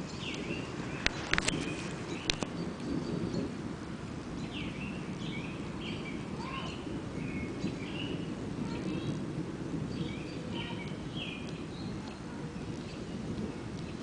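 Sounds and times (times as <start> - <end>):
bird chirping: 0.0 - 3.5, 4.4 - 8.2, 9.9 - 12.0
distant thunder rumble: 0.0 - 14.0.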